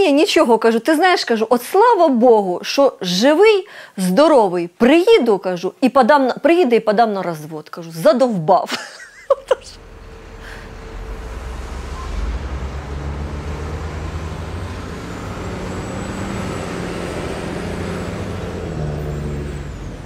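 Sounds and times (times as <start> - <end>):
road noise: 9.3 - 20.0
vehicle engine running: 9.4 - 20.0.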